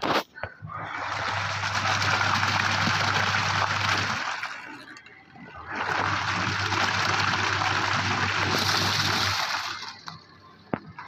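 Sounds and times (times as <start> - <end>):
washing machine motor hum: 0.6 - 10.8
water churning in washing machine: 0.7 - 10.3.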